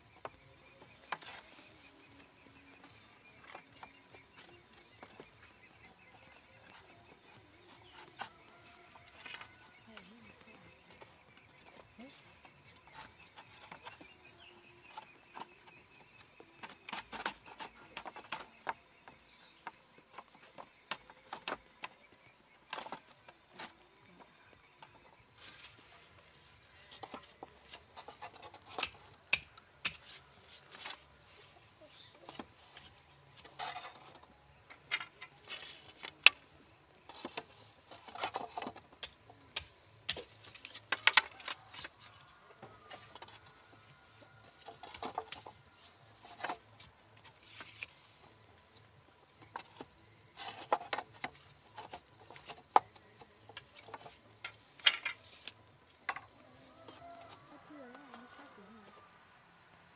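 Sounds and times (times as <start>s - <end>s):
bamboo slats clicking and knocking: 16.6s - 22.1s, 26.8s - 31.0s, 32.2s - 36.4s, 37.0s - 42.2s, 44.5s - 48.0s, 49.4s - 56.3s.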